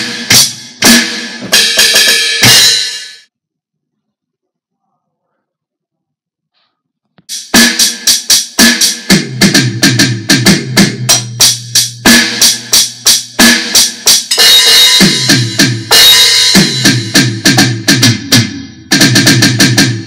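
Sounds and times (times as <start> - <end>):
electronic drum beat: 0.0 - 3.2, 7.3 - 20.0.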